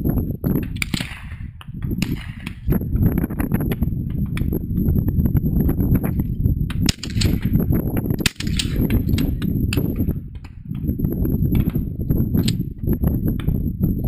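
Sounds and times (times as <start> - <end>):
wind buffeting microphone: 0.0 - 14.0
shotgun shots: 0.7 - 2.8, 6.8 - 7.6, 8.2 - 10.0.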